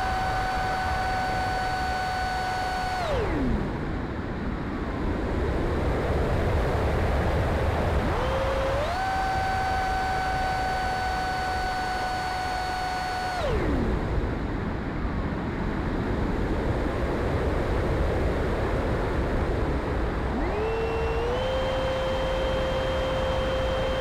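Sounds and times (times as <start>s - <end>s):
model plane motor whining: 0.0s - 3.8s, 8.1s - 14.1s, 20.4s - 24.0s.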